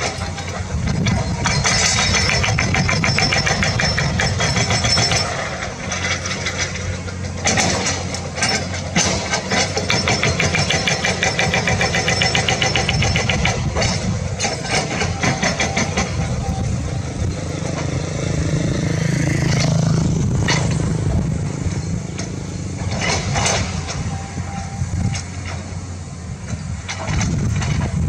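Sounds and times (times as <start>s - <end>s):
sharp metal clanks: 0.0s - 16.4s
excavator diesel engine: 0.0s - 28.0s.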